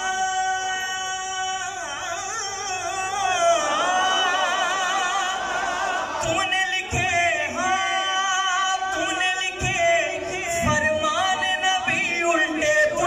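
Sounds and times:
man singing devotional song: 0.0 - 5.4, 6.2 - 13.0.

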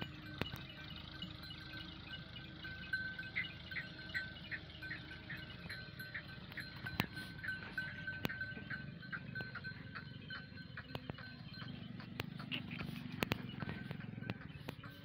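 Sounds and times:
sharp clicks: 12.2 - 14.8.

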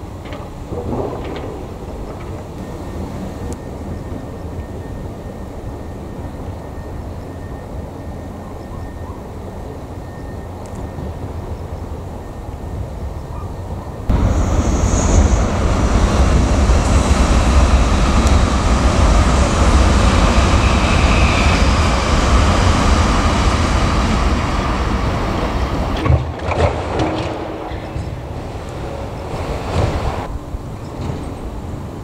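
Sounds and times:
train passing with rumble: 0.0 - 32.0.

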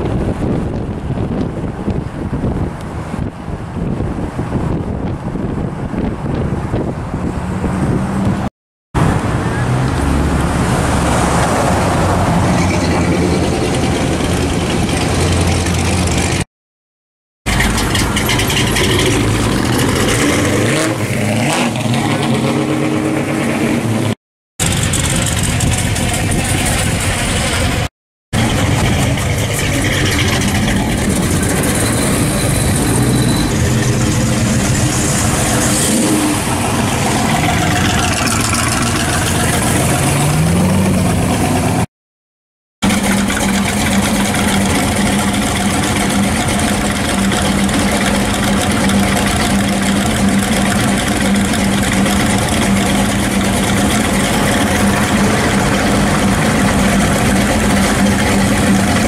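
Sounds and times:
car engines revving past: 6.7 - 16.4, 17.6 - 27.8, 28.4 - 41.9.

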